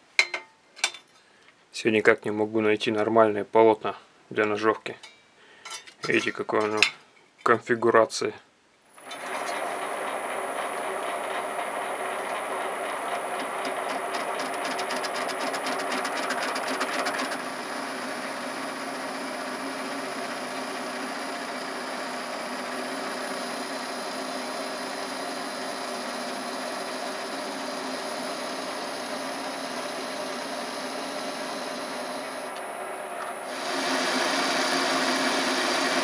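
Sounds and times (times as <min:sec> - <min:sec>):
metal lathe humming: 0:09.0 - 0:36.0.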